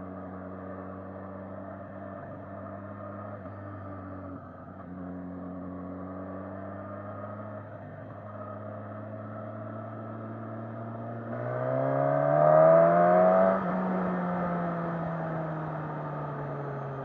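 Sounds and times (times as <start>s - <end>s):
motorcycle engine accelerating: 10.3s - 17.0s.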